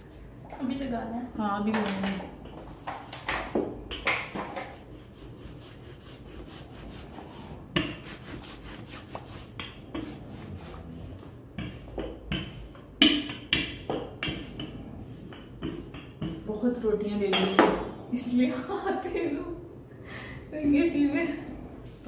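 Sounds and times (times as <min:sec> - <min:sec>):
rubbing strokes: 0:04.3 - 0:12.8, 0:13.5 - 0:16.8.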